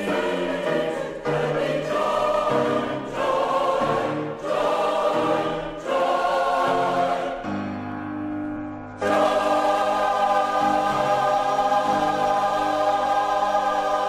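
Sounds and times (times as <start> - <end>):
choir singing worship song: 0.0 - 7.7, 9.0 - 14.0.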